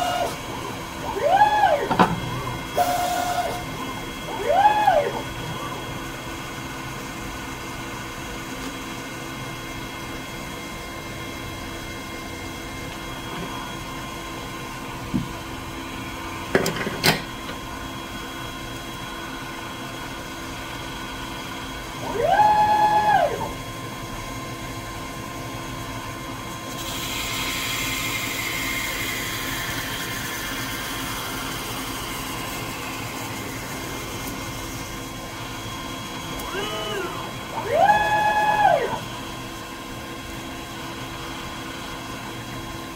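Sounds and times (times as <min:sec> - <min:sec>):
motor whine: 0:00.0 - 0:07.3, 0:27.2 - 0:41.8
lathe machine hum: 0:19.0 - 0:42.9.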